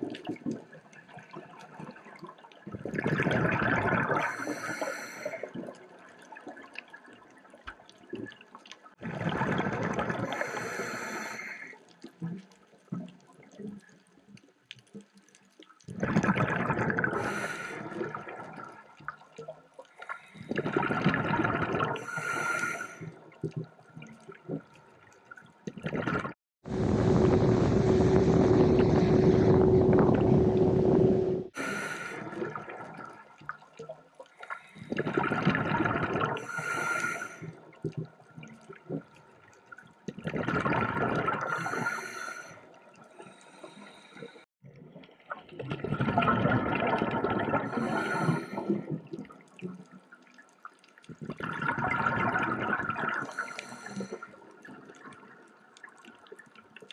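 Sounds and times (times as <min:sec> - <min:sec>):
underwater regulator breathing bubbles: 0:02.8 - 0:05.7, 0:09.1 - 0:11.7, 0:15.9 - 0:18.6, 0:20.1 - 0:23.1, 0:27.0 - 0:33.1, 0:34.4 - 0:38.0, 0:40.2 - 0:44.4, 0:45.8 - 0:49.2, 0:51.2 - 0:54.4
steady rush with low hum: 0:26.7 - 0:31.5.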